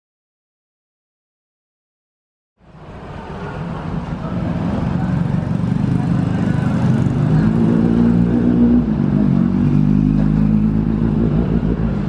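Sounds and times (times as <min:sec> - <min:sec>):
traffic noise: 0:02.6 - 0:12.0
motor scooters passing: 0:02.9 - 0:12.0.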